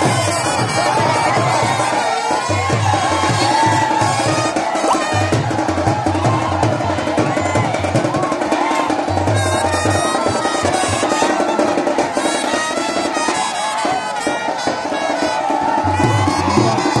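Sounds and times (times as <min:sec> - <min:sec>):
wind instruments playing: 0:00.0 - 0:06.4, 0:09.3 - 0:17.0
drums beating: 0:00.0 - 0:17.0
large crowd din: 0:00.0 - 0:17.0.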